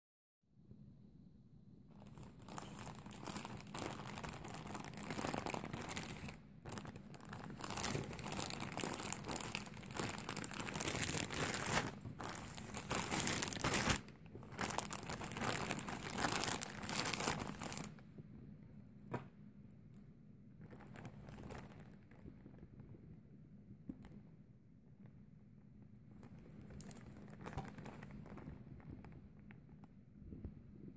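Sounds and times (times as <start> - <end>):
plastic bag crinkling: 1.9 - 18.0, 20.6 - 22.9, 26.3 - 29.5
faint handling noise: 1.9 - 30.9.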